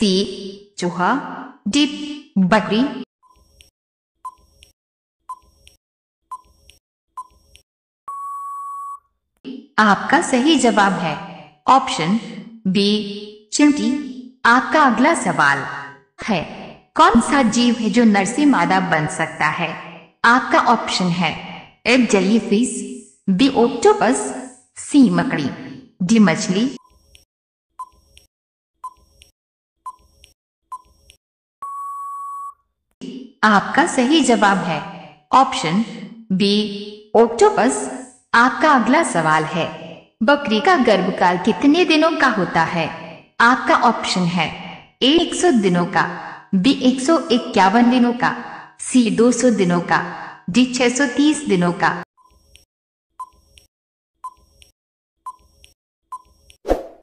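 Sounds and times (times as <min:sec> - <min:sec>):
long steady beep: 0:08.1 - 0:09.0, 0:31.6 - 0:32.6.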